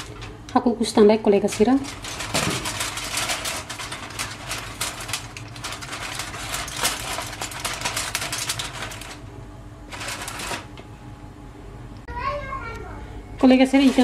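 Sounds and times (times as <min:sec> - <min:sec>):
aluminium foil crinkling: 0:00.0 - 0:09.3, 0:09.9 - 0:10.9, 0:13.4 - 0:14.0.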